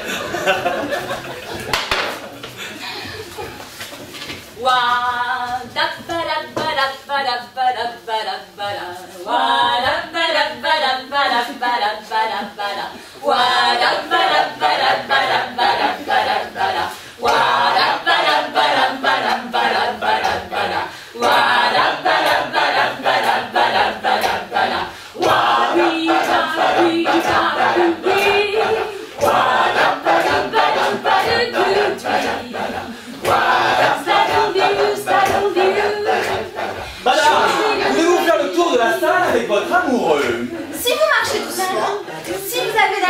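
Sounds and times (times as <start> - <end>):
group singing unaccompanied: 0.0 - 2.1, 4.5 - 43.0
hand claps: 1.6 - 2.6, 17.2 - 17.5, 21.2 - 24.4, 25.2 - 28.6, 29.2 - 32.4, 33.2 - 36.4.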